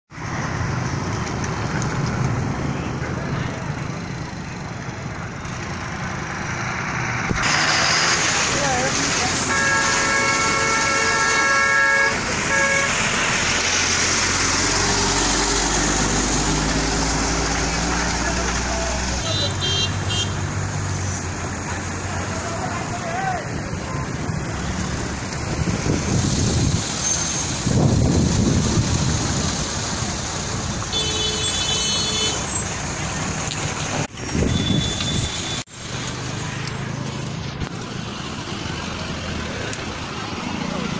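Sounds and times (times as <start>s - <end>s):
passing vehicle engine: 0.1s - 30.9s, 32.3s - 40.9s
passing traffic rushing: 0.1s - 40.9s
vehicle horn honking: 9.4s - 13.0s, 19.2s - 20.4s, 30.9s - 32.5s, 34.4s - 35.6s.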